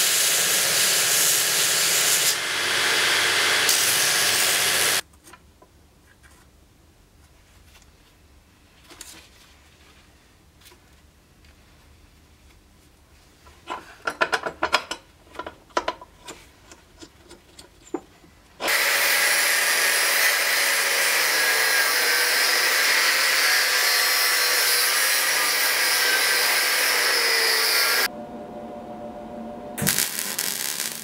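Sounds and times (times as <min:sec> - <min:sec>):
angle grinder cutting steel: 0:00.0 - 0:05.0, 0:18.6 - 0:28.1, 0:29.8 - 0:31.0.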